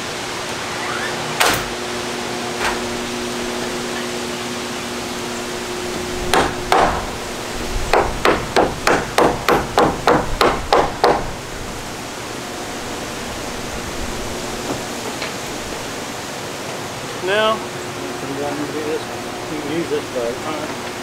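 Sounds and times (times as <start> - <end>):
hammer driving nails into wood: 6.3 - 7.0, 7.9 - 11.2.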